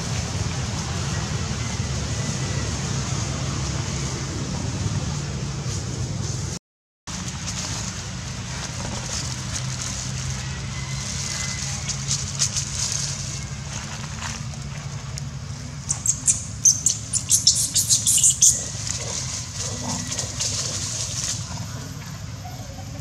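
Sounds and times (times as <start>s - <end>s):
dry leaves crackling and crunching: 7.1s - 22.1s.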